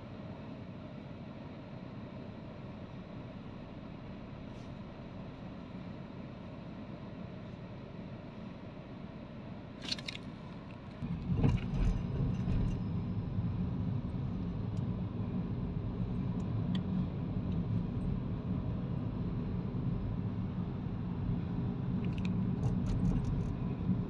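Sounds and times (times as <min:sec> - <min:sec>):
car engine and road rumble: 0:00.0 - 0:24.0
brief rattle in car: 0:11.1 - 0:12.9.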